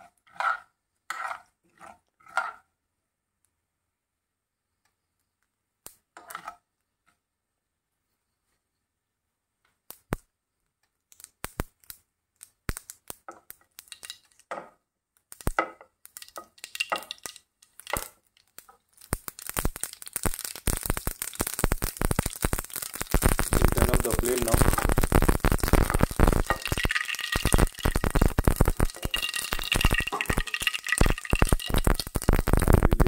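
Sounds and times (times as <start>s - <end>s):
mustard seeds crackling in oil: 11.0s - 33.0s.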